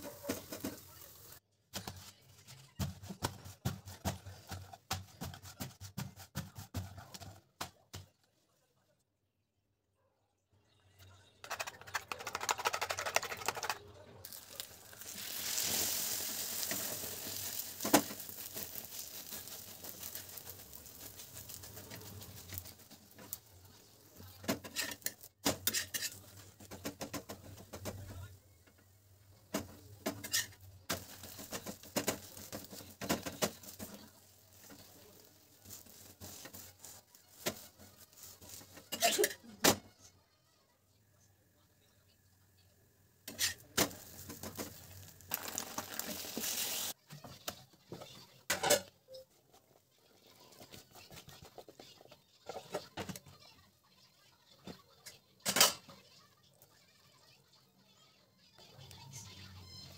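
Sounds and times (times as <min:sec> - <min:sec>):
egg sizzling on griddle: 0:13.5 - 0:28.0, 0:29.5 - 0:39.3, 0:43.3 - 0:47.0
spatula scraping griddle: 0:14.3 - 0:27.9, 0:29.6 - 0:39.4, 0:43.3 - 0:47.0.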